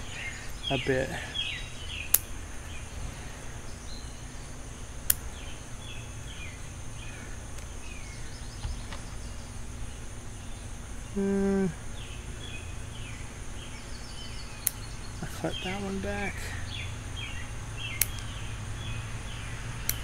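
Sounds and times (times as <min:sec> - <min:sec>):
small birds chirping: 0:00.0 - 0:20.0
shears snipping twig: 0:02.0 - 0:02.4, 0:05.0 - 0:05.4, 0:17.9 - 0:18.5, 0:19.7 - 0:20.0.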